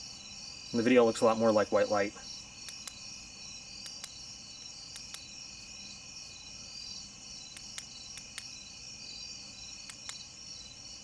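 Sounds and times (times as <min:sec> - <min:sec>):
crickets and insects trilling: 0:00.0 - 0:11.0
sharp clicks: 0:02.6 - 0:03.0, 0:03.8 - 0:04.2, 0:04.9 - 0:05.3, 0:07.5 - 0:08.5, 0:09.9 - 0:10.2.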